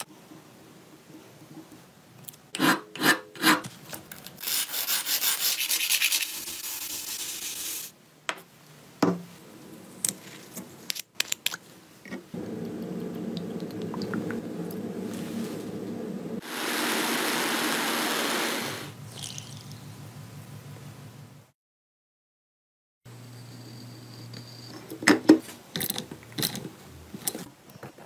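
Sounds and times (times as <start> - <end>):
hand sanding with sandpaper: 4.4 - 7.9
steady low hum: 12.3 - 16.4.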